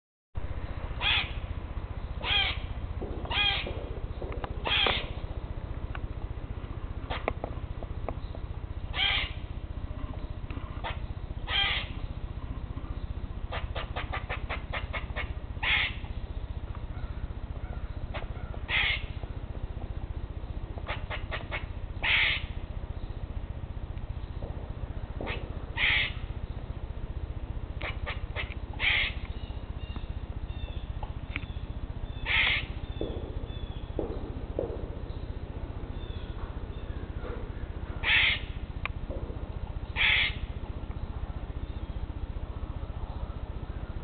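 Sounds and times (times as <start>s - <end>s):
squirrel harsh nasal calls: 1.0s - 1.4s, 2.2s - 3.8s, 4.6s - 5.2s, 8.9s - 9.5s, 10.6s - 12.1s, 12.8s - 16.1s, 16.9s - 19.2s, 20.8s - 22.6s, 25.2s - 26.3s, 27.8s - 33.8s, 35.9s - 38.6s, 39.9s - 40.5s.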